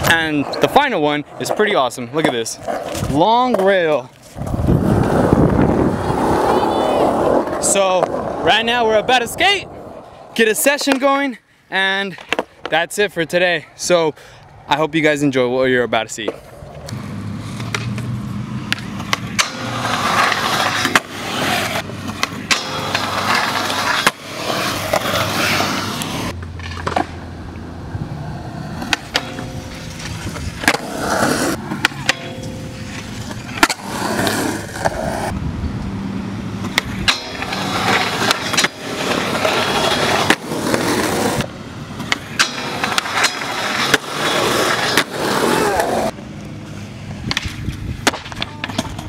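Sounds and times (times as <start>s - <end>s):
skateboard wheels rolling on concrete: 0.0s - 49.0s
skateboard popping and landing: 16.2s - 27.4s, 28.6s - 35.4s, 36.6s - 46.2s, 47.2s - 49.0s
skateboard sliding on metal rail: 16.7s - 27.2s, 28.2s - 35.3s, 36.6s - 46.2s.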